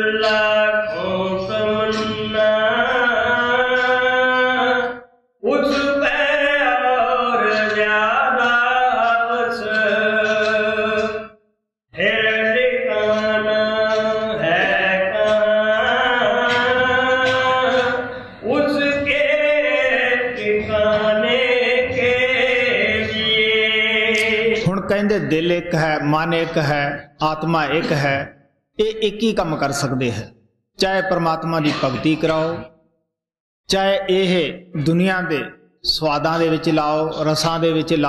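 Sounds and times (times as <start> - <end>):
person chanting a hymn: 0.0 - 11.3, 12.0 - 25.7.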